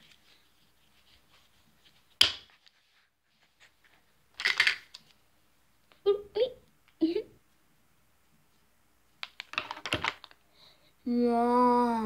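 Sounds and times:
plastic tools clattering: 0:09.4 - 0:10.4.

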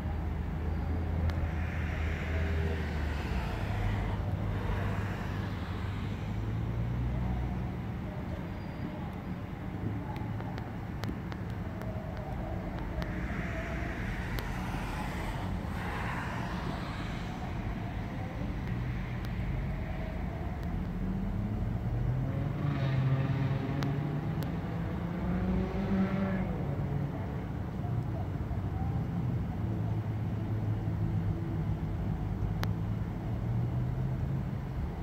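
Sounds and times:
traffic engine rumble: 0:00.0 - 0:35.0
engine note rising: 0:01.0 - 0:07.3, 0:12.4 - 0:18.8
tyre noise hissing: 0:01.4 - 0:07.1, 0:12.6 - 0:18.3.

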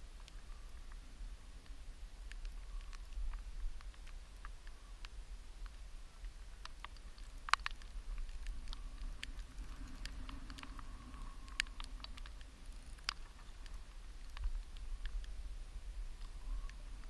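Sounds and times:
wind rumble on microphone: 0:00.0 - 0:17.0
light taps and clicks: 0:01.6 - 0:15.4.

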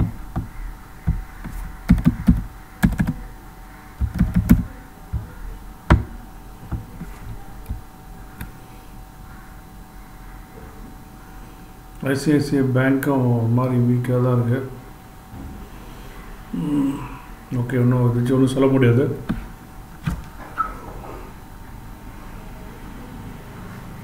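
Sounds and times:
faint steady hum: 0:00.0 - 0:24.0
keyboard typing: 0:01.1 - 0:03.2, 0:04.0 - 0:06.1.

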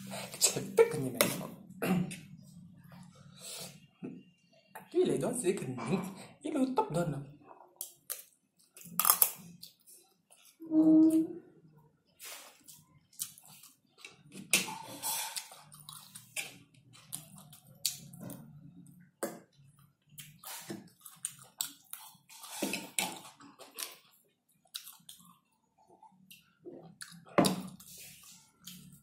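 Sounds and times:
man chewing and slurping noodles: 0:12.1 - 0:18.7, 0:19.9 - 0:29.0.

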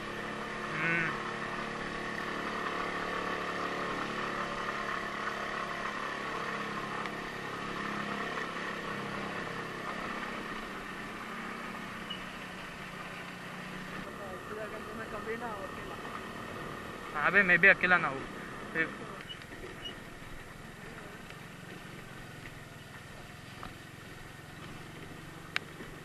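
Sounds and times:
motorcycle engine running: 0:00.0 - 0:26.0
wind and road noise: 0:00.0 - 0:26.0.

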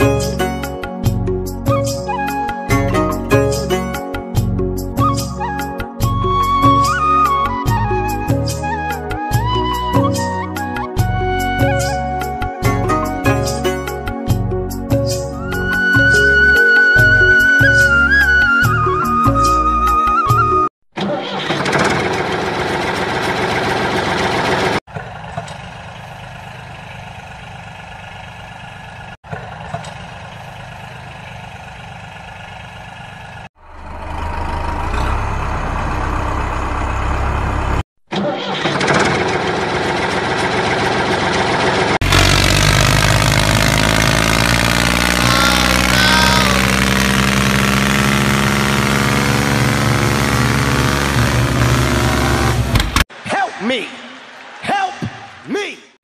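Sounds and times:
tractor engine running: 0:21.3 - 0:53.1.

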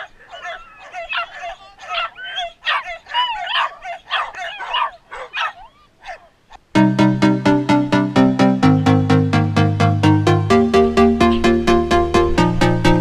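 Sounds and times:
small dog yipping and whining: 0:00.0 - 0:06.3.

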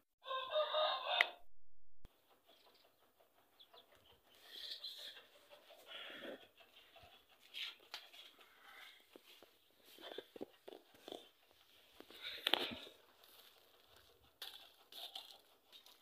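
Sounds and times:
rooster crowing: 0:00.2 - 0:01.4
faint rustles and ticks: 0:02.5 - 0:16.0.

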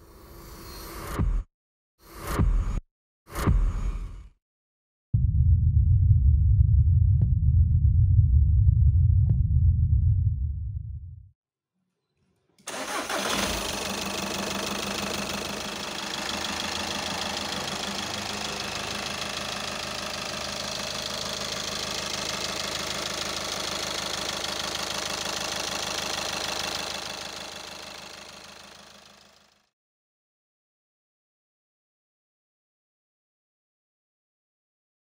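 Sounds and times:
diesel engine idling: 0:12.7 - 0:29.6.

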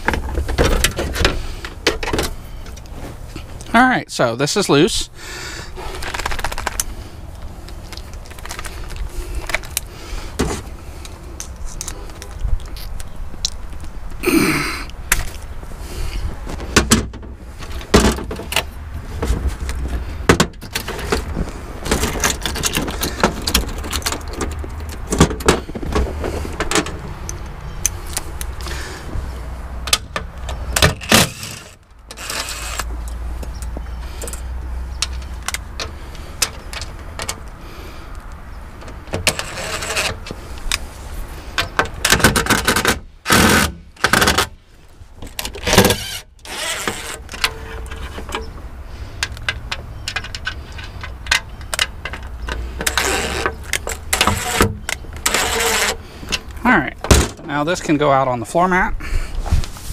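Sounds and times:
tools and bolts clinking: 0:49.2 - 0:57.5.

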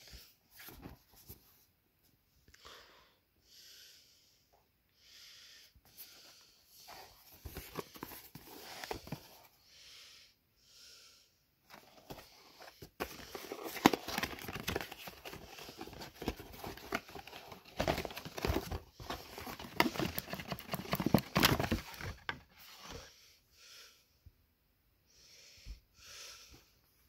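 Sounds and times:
cardboard box being opened: 0:06.9 - 0:09.4, 0:11.7 - 0:22.4
packaging crinkling and rustling: 0:12.0 - 0:22.4.

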